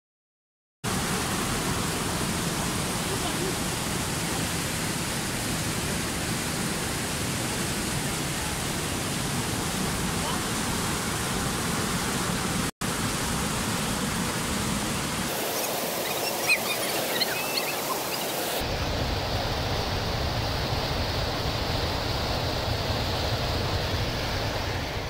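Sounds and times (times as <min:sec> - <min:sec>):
white water rushing over boulders: 0:00.9 - 0:25.0
faint high chirps: 0:15.4 - 0:18.6.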